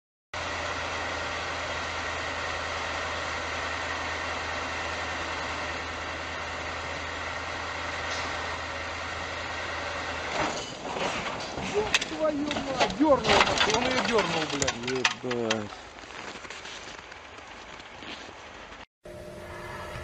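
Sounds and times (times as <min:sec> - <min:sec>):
truck diesel engine running: 0:00.4 - 0:16.3.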